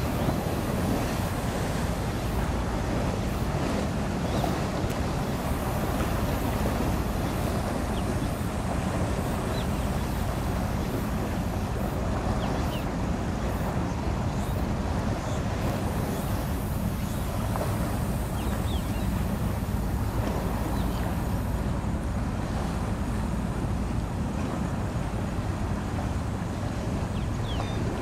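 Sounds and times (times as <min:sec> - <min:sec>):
water noise: 0:00.0 - 0:28.0
wind buffeting microphone: 0:00.0 - 0:28.0.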